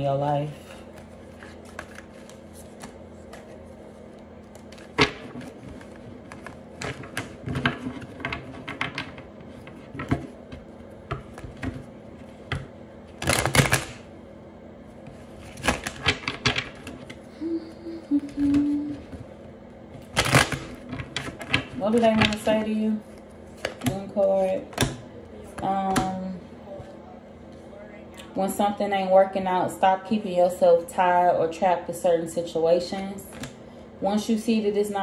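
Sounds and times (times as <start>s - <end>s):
cards shuffling: 0.6s - 10.3s.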